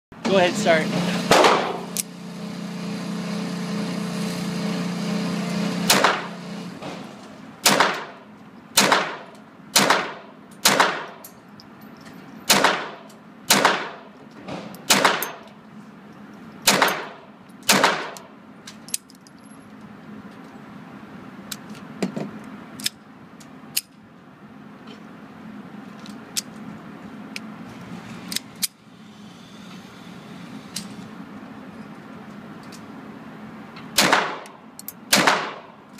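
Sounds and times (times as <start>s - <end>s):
pistol shots echoing: 7.6s - 8.2s, 8.8s - 11.2s, 12.5s - 14.0s, 14.9s - 15.4s, 16.7s - 18.2s, 34.0s - 34.5s, 35.1s - 35.7s.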